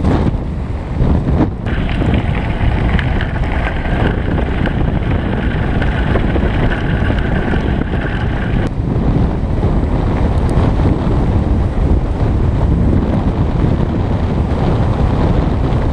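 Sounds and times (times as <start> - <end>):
wind buffeting microphone: 0.0 - 15.9
bike tyres rolling on gravel: 1.7 - 8.7.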